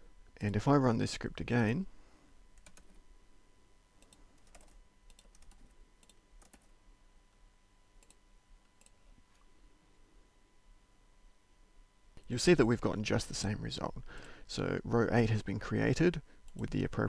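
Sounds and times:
computer keyboard keystrokes: 2.6s - 3.0s, 4.0s - 6.7s.

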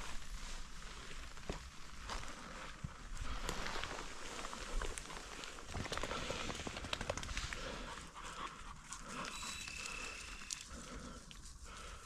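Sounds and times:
dog panting: 7.5s - 10.0s.

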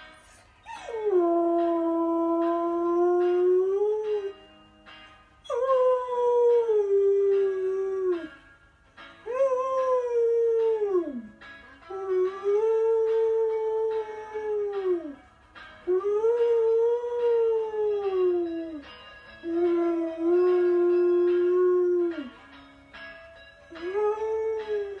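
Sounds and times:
dog howling: 15.9s - 22.4s, 23.7s - 25.0s.

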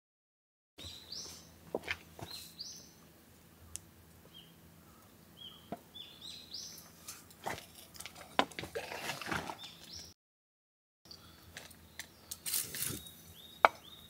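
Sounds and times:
small birds chirping: 0.8s - 7.2s, 11.1s - 14.0s.

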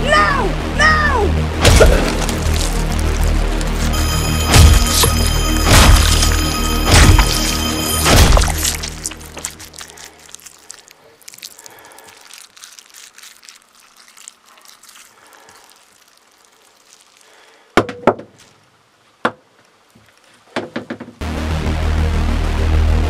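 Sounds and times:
sharp knocks and thuds: 17.8s - 18.4s.

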